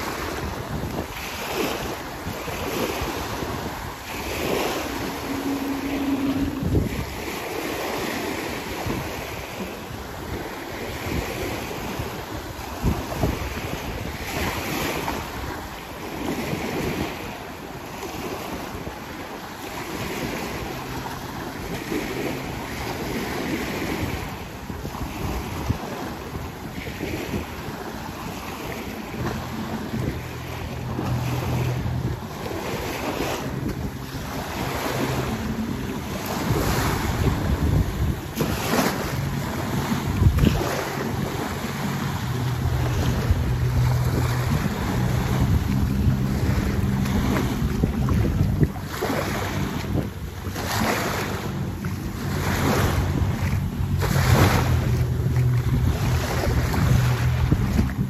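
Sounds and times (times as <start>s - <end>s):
waves breaking on shore: 0.0s - 58.0s
wind buffeting microphone: 0.0s - 58.0s
low engine hum: 1.8s - 10.5s, 11.4s - 58.0s.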